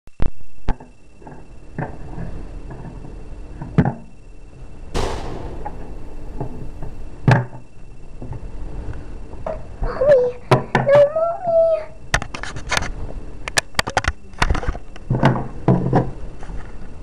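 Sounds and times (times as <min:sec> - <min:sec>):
sharp noisy burst: 0:05.0 - 0:07.2.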